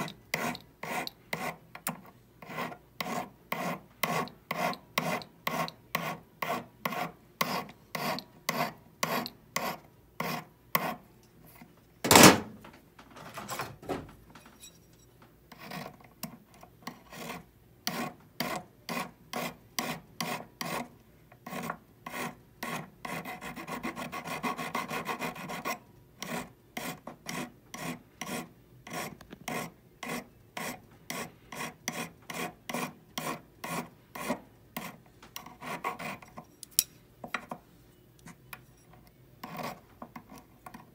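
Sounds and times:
hand file rasping on metal: 0.0s - 11.0s, 15.5s - 36.4s, 39.4s - 40.8s.

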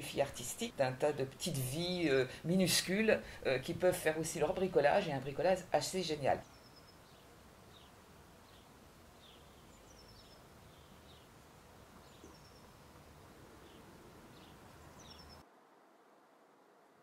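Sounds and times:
small birds chirping: 0.2s - 15.4s.

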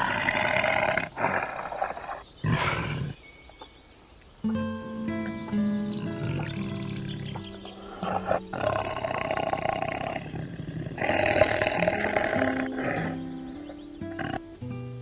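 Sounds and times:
tiger roaring: 0.0s - 3.2s, 6.0s - 13.2s
background music: 4.5s - 9.6s, 11.1s - 15.0s.

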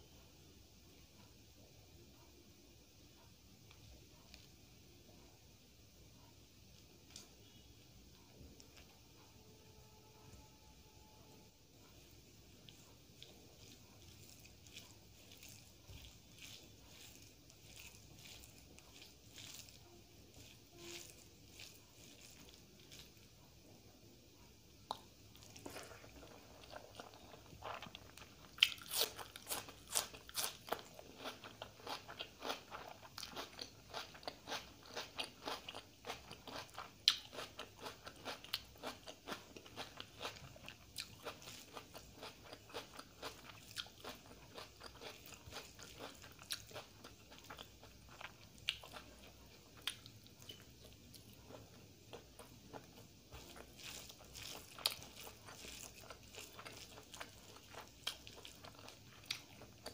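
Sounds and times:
chewing: 11.8s - 23.4s, 24.8s - 59.9s
wet clicks of fingers mixing rice: 12.6s - 23.4s, 41.0s - 59.9s.

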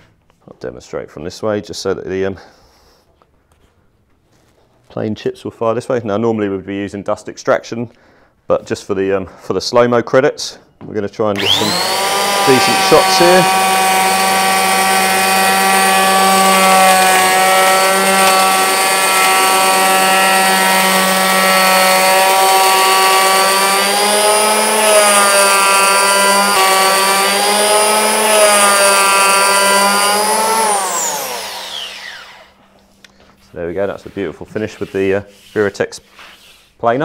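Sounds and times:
electric hand planer whining: 11.4s - 32.9s.

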